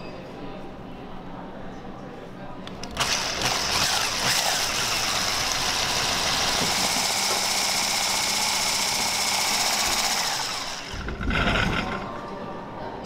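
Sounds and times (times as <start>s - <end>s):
stand mixer whisking batter: 3.0s - 12.1s.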